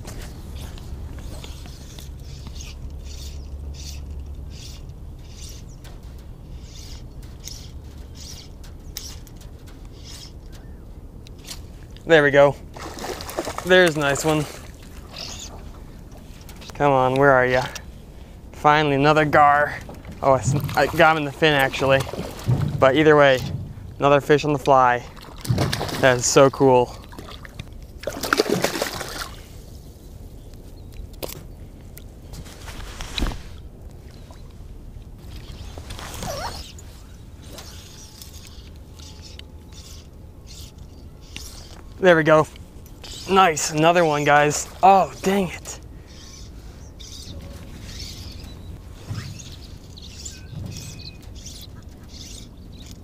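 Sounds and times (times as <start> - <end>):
birds chirping: 0.0 - 28.0, 30.1 - 32.5, 33.2 - 53.0
water splashing and trickling: 0.0 - 29.8, 33.3 - 53.0
low thumps: 19.8 - 24.2.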